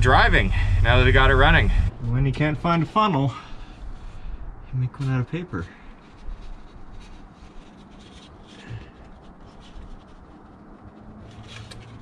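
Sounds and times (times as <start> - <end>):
paper rustling: 5.7 - 12.0.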